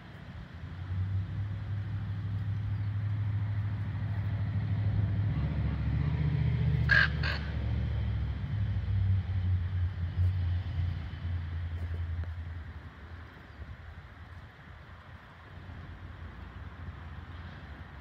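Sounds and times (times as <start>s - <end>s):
vehicle engine rumbling: 0.0s - 18.0s
raven calling: 6.8s - 7.6s.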